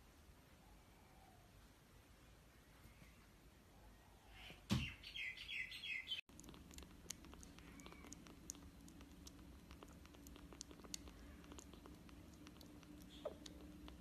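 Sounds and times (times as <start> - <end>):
kittens chirping mews: 4.1 - 14.0
thump: 4.7 - 4.9
kitten suckling clicks: 6.3 - 14.0
steady low hum: 6.3 - 14.0.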